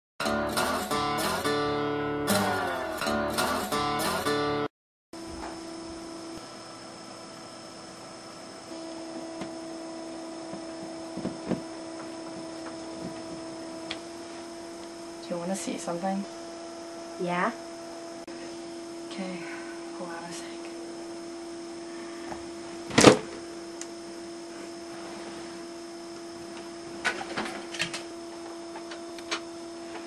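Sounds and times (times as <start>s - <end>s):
strummed acoustic guitar: 0.2s - 4.7s
electrical hum: 0.2s - 30.0s.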